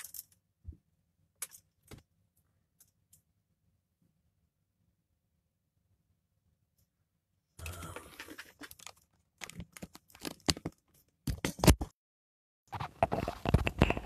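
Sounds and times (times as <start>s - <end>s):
microphone handling rustling and clicks: 12.7s - 14.0s.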